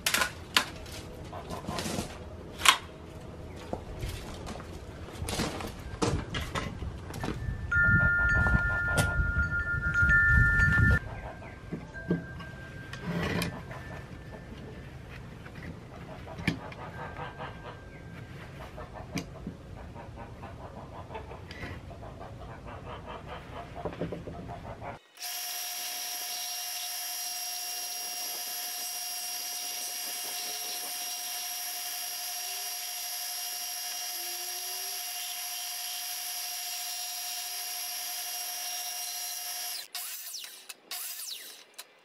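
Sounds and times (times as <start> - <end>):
belt sander motor whining: 25.2 - 41.8.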